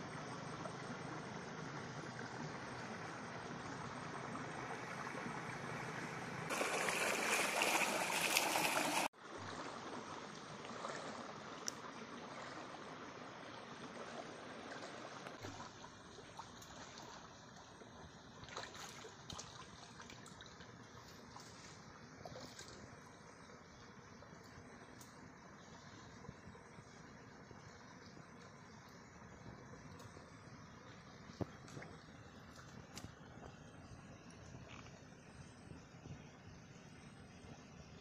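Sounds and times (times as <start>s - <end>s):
water trickling: 0.1s - 36.6s
water rushing: 6.4s - 11.6s.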